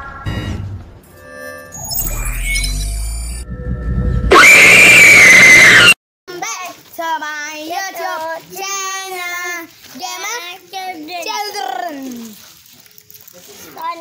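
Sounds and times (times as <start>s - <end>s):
loud distorted high-pitched scream: 1.7s - 6.0s.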